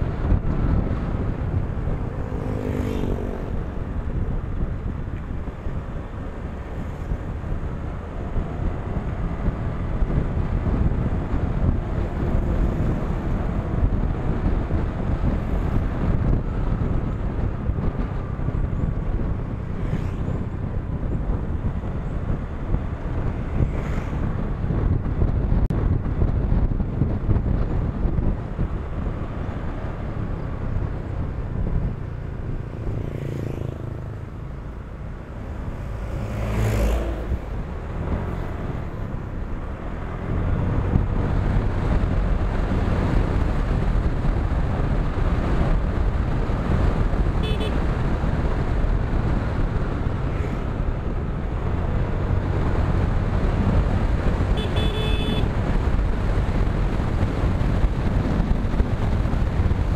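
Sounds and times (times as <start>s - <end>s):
wind noise on microphone: 0.0s - 59.9s
horn beeps: 47.4s - 47.8s, 54.6s - 55.5s.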